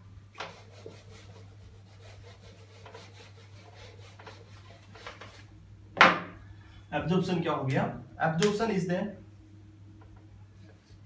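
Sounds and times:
low steady hum: 0.0 - 11.0
eraser wiping a whiteboard: 0.3 - 5.5.

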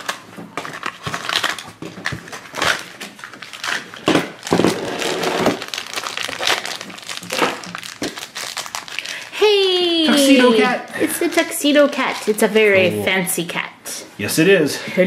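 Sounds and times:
wrapping paper crinkling and rustling: 0.0 - 9.4, 11.2 - 12.7.

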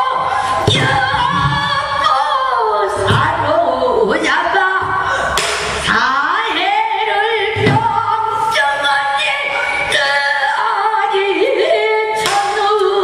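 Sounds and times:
woman singing long wavering notes: 0.0 - 13.0.

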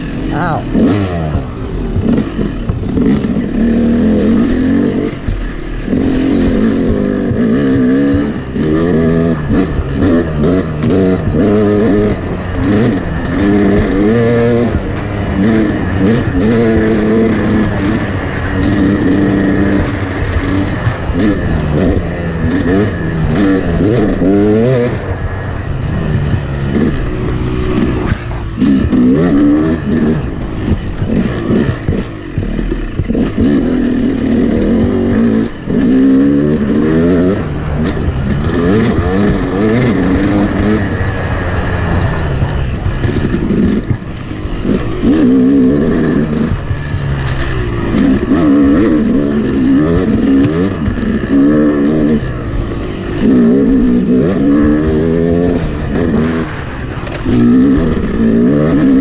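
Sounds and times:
two-stroke dirt bike engine: 0.0 - 59.0.

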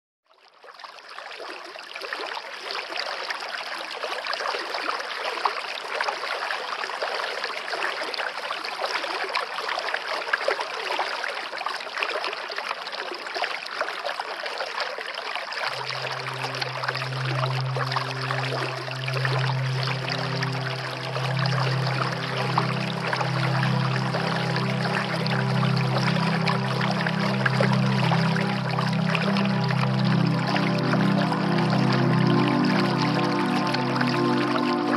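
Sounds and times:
running water rushing: 12.5 - 34.9
low held music note: 15.7 - 34.9.

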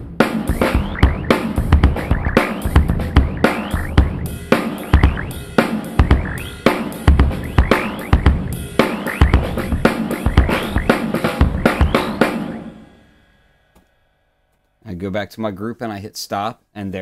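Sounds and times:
drum kit beat: 0.0 - 13.4.

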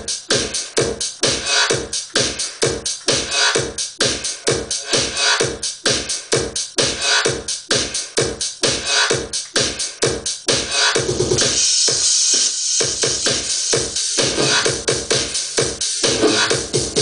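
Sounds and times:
electronic dance music: 0.0 - 17.0.

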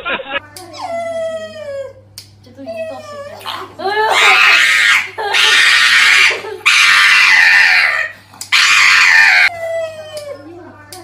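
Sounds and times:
harsh screaming: 4.2 - 9.5.

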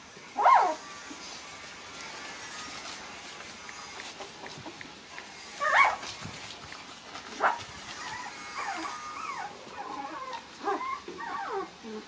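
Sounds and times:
puppies whimpering and yipping: 0.0 - 12.0
puppy yelp: 0.4 - 0.8, 5.6 - 6.1, 7.3 - 12.0.

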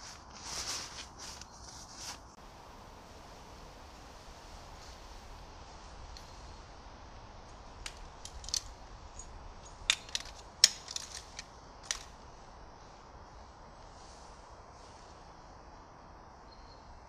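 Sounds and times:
tent pole sections clacking: 0.0 - 2.4, 7.4 - 12.3.

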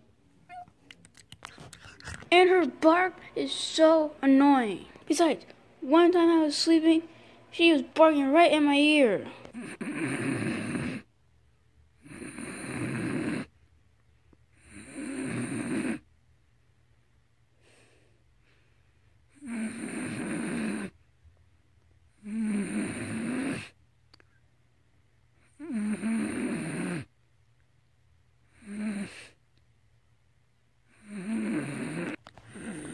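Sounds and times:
dog snoring: 9.5 - 11.1, 12.0 - 13.5, 14.5 - 16.1, 19.3 - 21.0, 22.1 - 23.8, 25.4 - 27.1, 28.5 - 29.4, 30.9 - 32.9.

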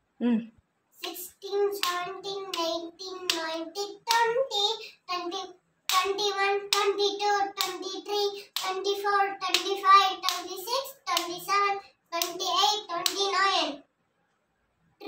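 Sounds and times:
boy chanting numbers: 1.0 - 13.8.

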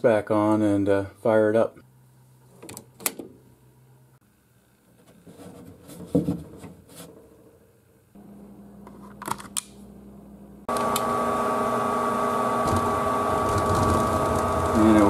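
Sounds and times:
rubbing: 4.9 - 7.2, 12.7 - 14.8
draft inducer motor whine: 9.9 - 15.0.

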